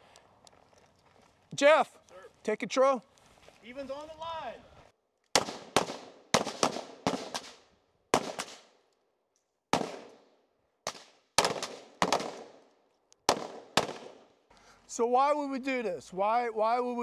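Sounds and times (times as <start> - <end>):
rifle shots with echo: 5.4 - 8.7, 9.7 - 10.3, 10.9 - 12.6, 13.3 - 14.3.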